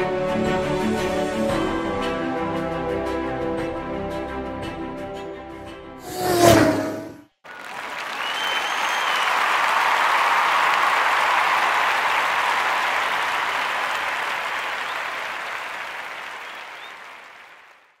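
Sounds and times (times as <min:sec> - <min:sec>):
crowd applauding: 0:07.4 - 0:18.0.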